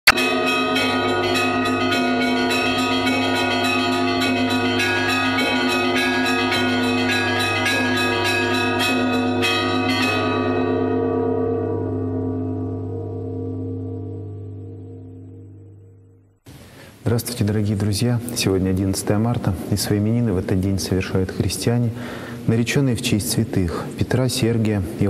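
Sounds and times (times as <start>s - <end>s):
church bells pealing: 0.1s - 16.2s, 17.1s - 25.0s.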